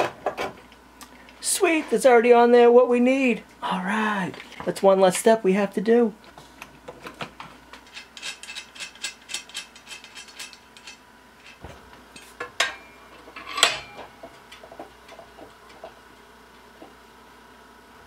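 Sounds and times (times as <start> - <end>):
sharp metal clanks: 12.2 - 14.3.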